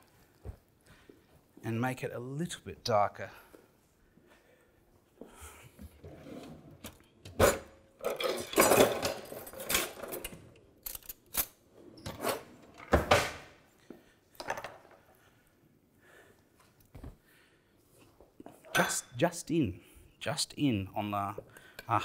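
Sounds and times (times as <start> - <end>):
pots and pans clattering: 7.5 - 10.1.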